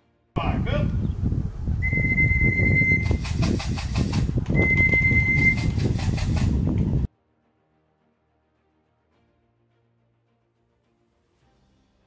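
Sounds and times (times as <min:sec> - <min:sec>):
pigeon wings clattering: 0:03.0 - 0:06.9.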